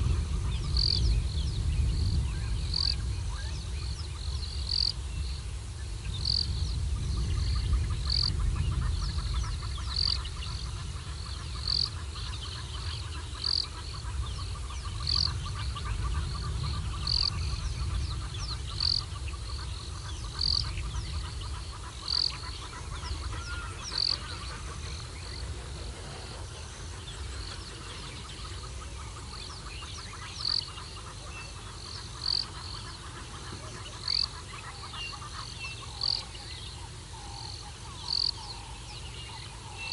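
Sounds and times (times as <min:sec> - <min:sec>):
faint bird chirps: 0:00.0 - 0:39.9
wind rumble on microphone: 0:00.0 - 0:39.9.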